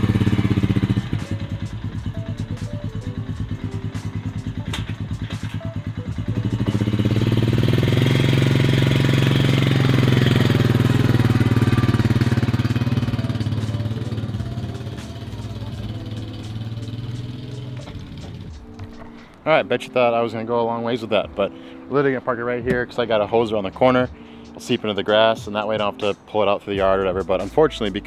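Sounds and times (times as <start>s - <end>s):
quad bike engine running: 0.0s - 18.6s.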